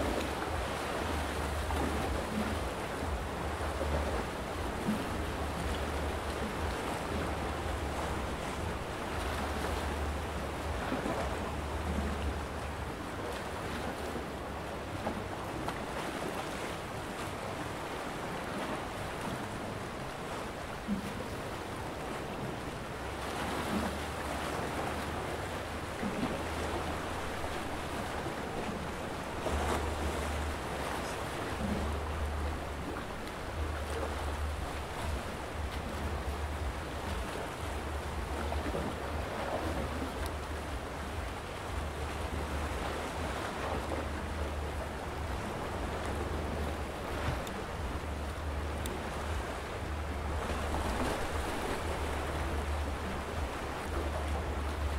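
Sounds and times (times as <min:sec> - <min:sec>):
wind rumble on microphone: 0:00.0 - 0:54.9.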